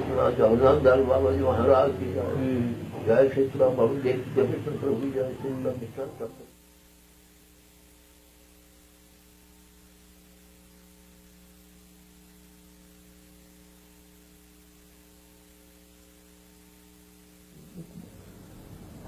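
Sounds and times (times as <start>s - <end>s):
mains hum with faint hiss: 0.0s - 19.0s.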